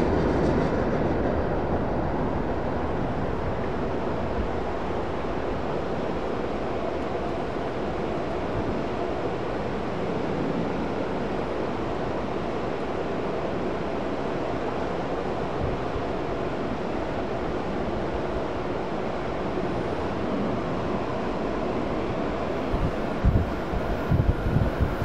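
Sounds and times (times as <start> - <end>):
wind noise on microphone: 0.0 - 6.2, 20.5 - 25.0.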